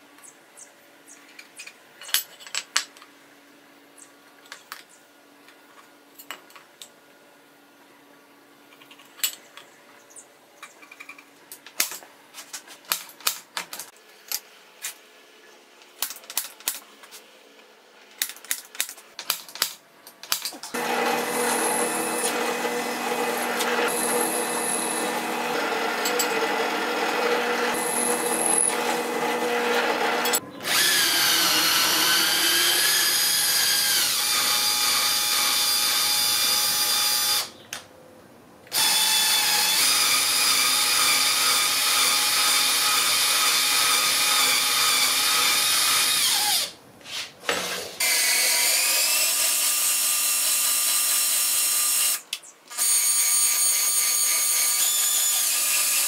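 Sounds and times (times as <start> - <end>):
electric drill whining: 20.7 - 37.5, 38.7 - 46.7, 48.0 - 56.0
drill press boring metal: 20.8 - 37.5, 38.7 - 46.7.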